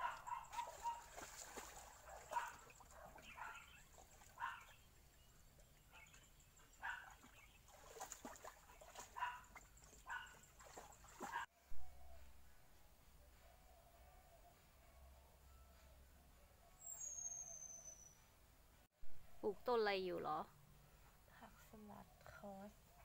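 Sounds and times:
dog wading through water: 0.0 - 4.9, 5.6 - 11.5.

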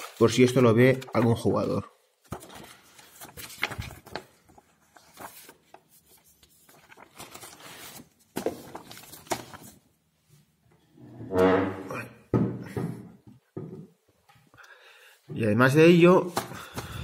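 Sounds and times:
paper rustling and sliding: 0.0 - 9.8.

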